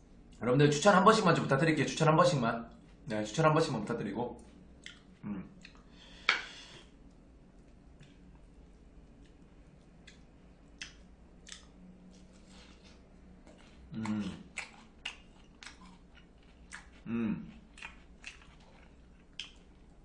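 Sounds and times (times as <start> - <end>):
chewing: 4.4 - 5.9, 7.1 - 20.0
man murmuring: 5.2 - 5.5, 13.9 - 14.4, 17.1 - 17.5.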